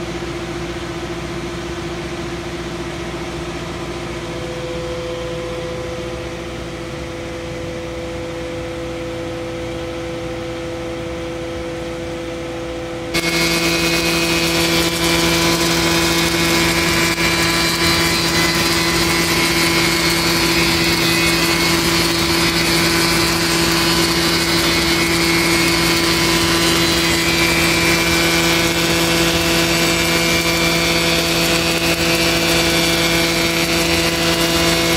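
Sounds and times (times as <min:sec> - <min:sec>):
shaper machine running: 0:13.1 - 0:34.9
wood cutting noise: 0:13.1 - 0:34.9.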